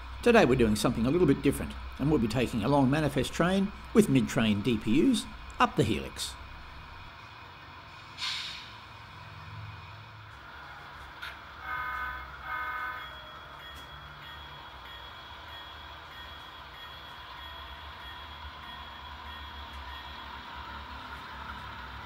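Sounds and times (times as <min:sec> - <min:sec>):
diesel engine rumble from speaker: 0:00.0 - 0:11.6
model train horn toots: 0:11.6 - 0:13.1.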